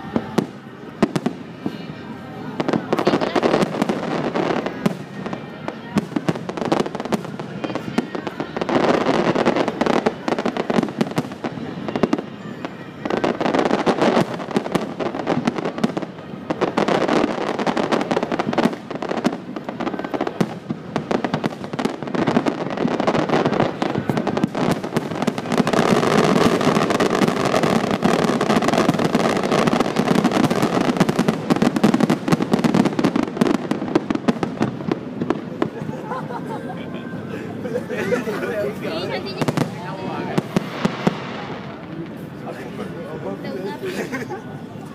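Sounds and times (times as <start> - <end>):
fireworks bursting and crackling: 0.0 - 44.9.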